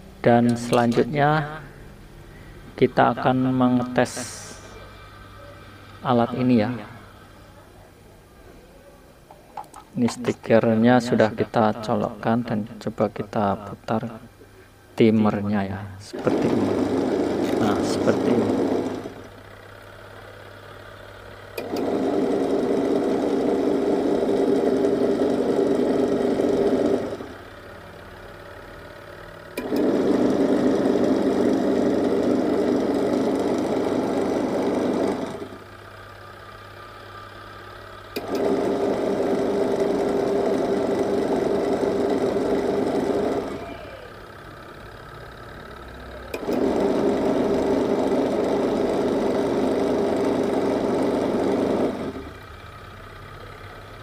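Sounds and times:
washing machine motor humming: 16.1 - 54.0.

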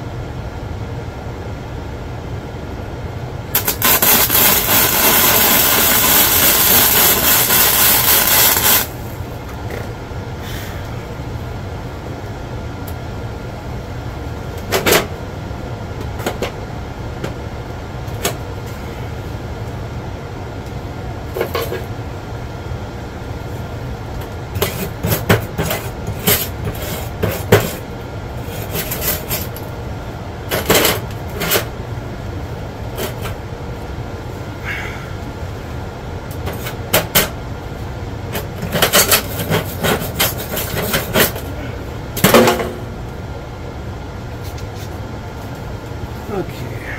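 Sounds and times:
steady low hum: 0.0 - 46.9
wire brush scraping metal: 3.6 - 8.9, 28.4 - 29.6, 38.6 - 41.4.

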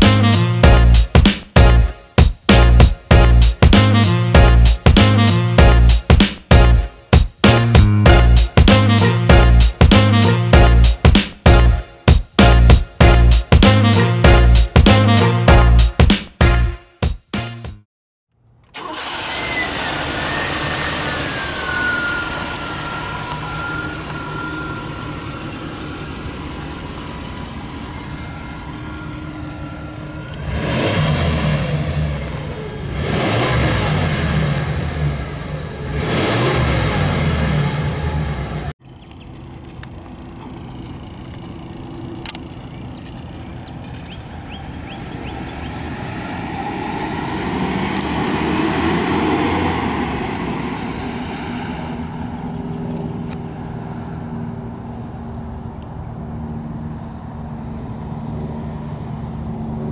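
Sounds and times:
car engine revving: 18.7 - 54.1
car driving by: 18.8 - 59.9
car engine idling with whine: 19.0 - 48.1.

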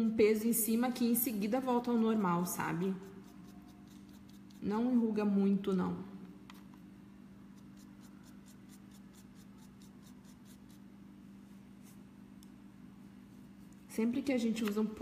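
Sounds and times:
paintbrush strokes on paper: 11.4 - 12.1.

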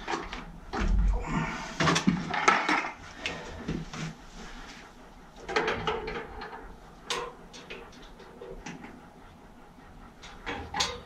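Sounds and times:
knocks clanks and scrapes: 0.0 - 4.2, 10.4 - 11.0.

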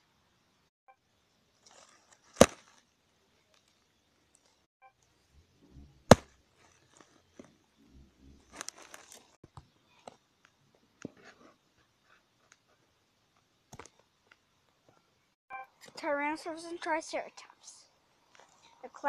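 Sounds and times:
sharp knock: 6.1 - 6.3
dry leaves crackling and crunching: 8.6 - 9.4.

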